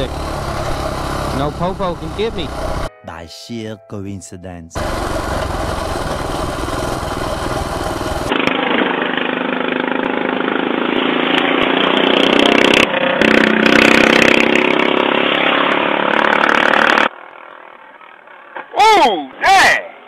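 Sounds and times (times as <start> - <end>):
minibike engine running: 0.0 - 2.9, 4.8 - 14.4.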